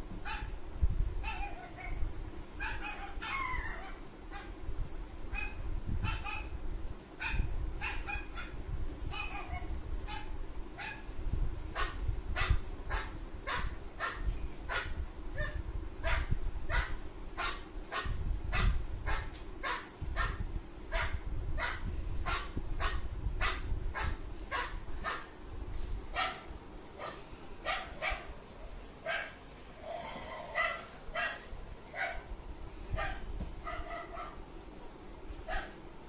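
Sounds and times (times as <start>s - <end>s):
dog barking through phone speaker: 30.5s - 32.3s, 33.0s - 34.4s.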